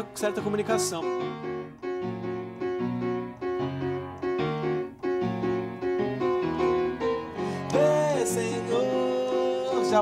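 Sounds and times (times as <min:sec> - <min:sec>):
upright piano playing chords: 0:00.0 - 0:10.0.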